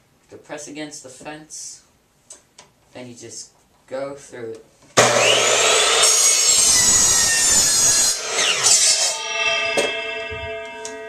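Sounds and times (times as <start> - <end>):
miter saw cutting wood: 5.0 - 11.0.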